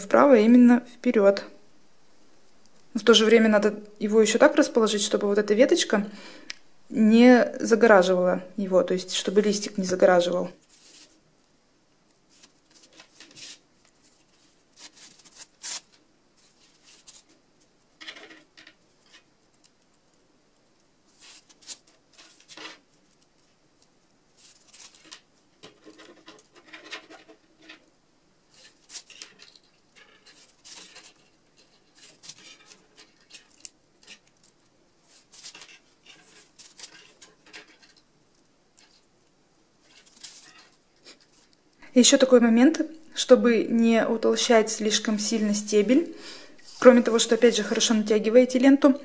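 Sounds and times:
floral tape crinkling: 0:12.1 - 0:41.8.

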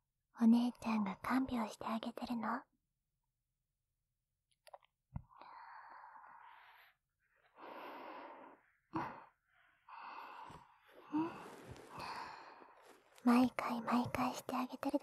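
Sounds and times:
woman breathing slowly: 0:05.3 - 0:13.2.

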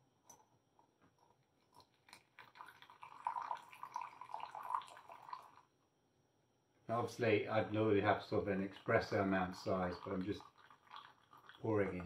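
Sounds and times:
coffee trickling into glass: 0:01.2 - 0:05.7, 0:08.3 - 0:12.0.

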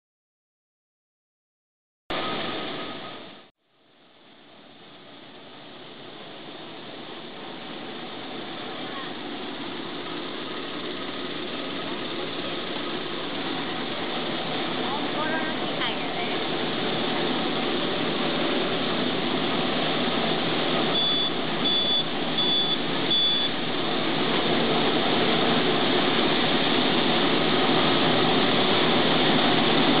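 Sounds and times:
machinery running: 0:02.1 - 0:03.5, 0:05.5 - 0:30.0
machine beeper short beeps: 0:21.0 - 0:23.6.

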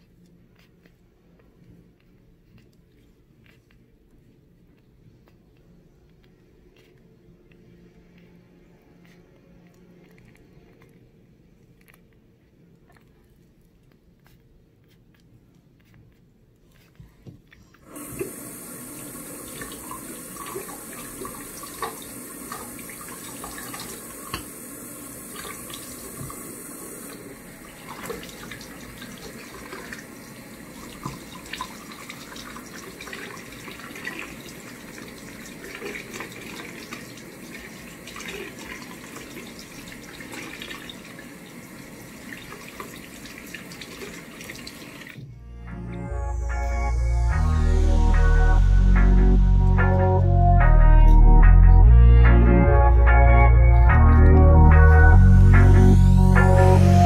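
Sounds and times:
music: 0:05.7 - 0:11.0, 0:45.2 - 0:57.0
faucet water splashing in sink: 0:17.8 - 0:45.2.

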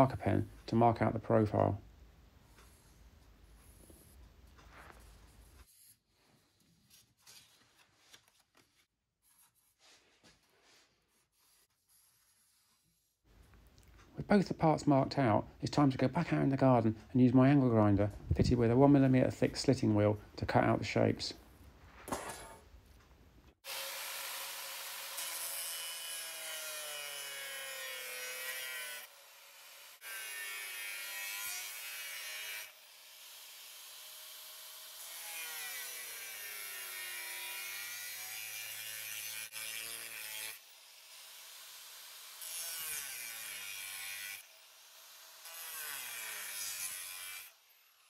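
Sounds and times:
angle grinder cutting steel: 0:23.6 - 0:48.0.

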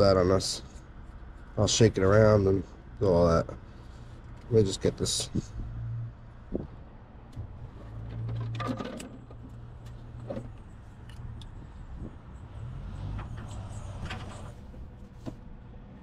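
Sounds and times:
tools and parts being handled: 0:07.7 - 0:11.6.

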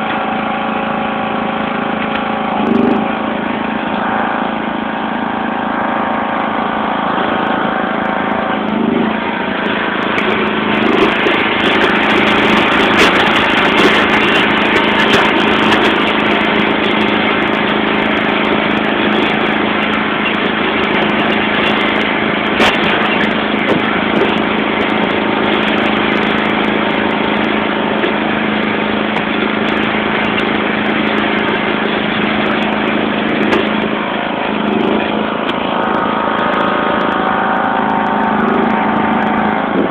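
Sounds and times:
lawn tractor engine running: 0:00.0 - 0:39.9
snowthrower throwing snow: 0:00.0 - 0:39.9.

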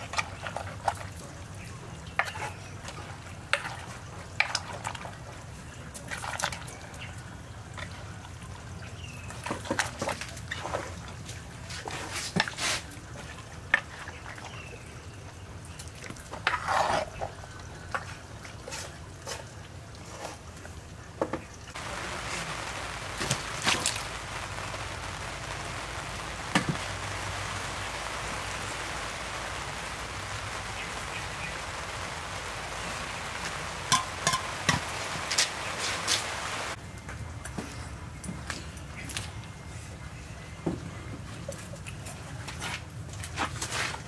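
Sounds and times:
steady hiss: 0:21.7 - 0:36.8.

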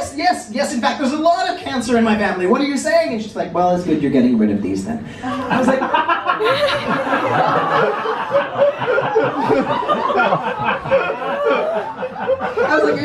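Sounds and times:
audience laughing: 0:05.2 - 0:13.0.

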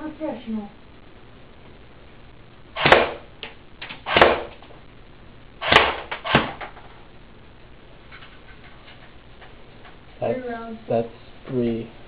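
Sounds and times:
airsoft rifle shots: 0:02.8 - 0:03.3, 0:03.9 - 0:04.6, 0:05.6 - 0:06.6
pellets striking target: 0:02.8 - 0:03.3, 0:04.1 - 0:04.6, 0:05.6 - 0:06.6.

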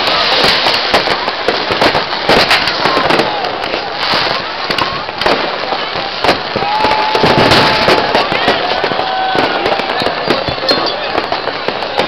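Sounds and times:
fireworks bangs and crackles: 0:00.0 - 0:12.0
whistling rockets: 0:00.0 - 0:12.0.

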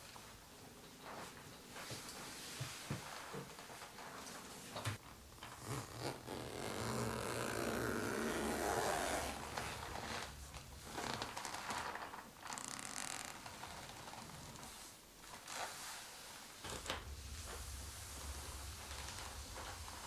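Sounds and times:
boot zipper zipping up: 0:05.6 - 0:10.3.

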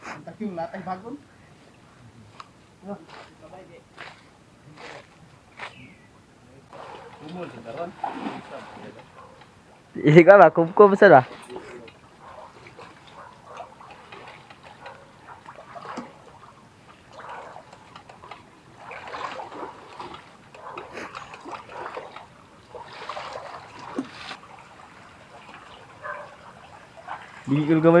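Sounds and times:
people wading through water: 0:00.8 - 0:28.0
water splashing and sloshing: 0:06.6 - 0:28.0.

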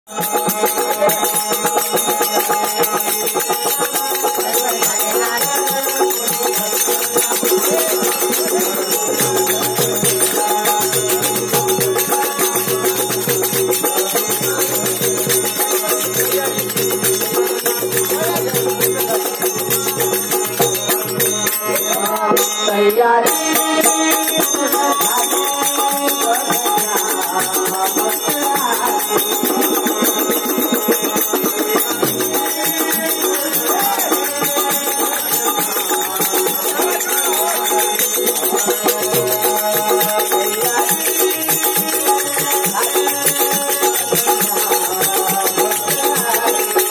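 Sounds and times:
harmonium: 0:00.0 - 0:46.9
barrel drum: 0:00.1 - 0:22.5, 0:23.3 - 0:46.9
men singing together: 0:23.3 - 0:46.9.

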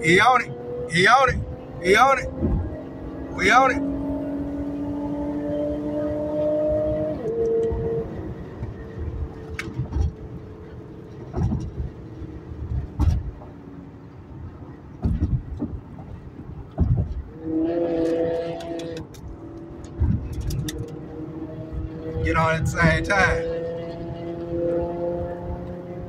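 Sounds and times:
car engine accelerating: 0:00.0 - 0:26.0
low thumps: 0:09.0 - 0:10.4, 0:11.2 - 0:12.0, 0:12.6 - 0:13.6, 0:15.0 - 0:17.4, 0:18.9 - 0:21.1.

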